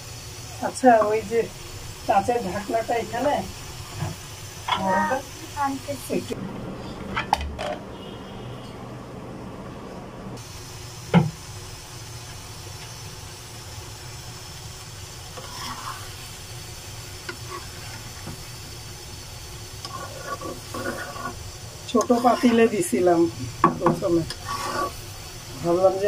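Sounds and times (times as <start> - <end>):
vegetables sizzling in a pan: 0.0 - 6.9, 10.4 - 26.0
spatula scraping a pan: 15.3 - 16.5, 17.2 - 18.3, 19.8 - 25.2.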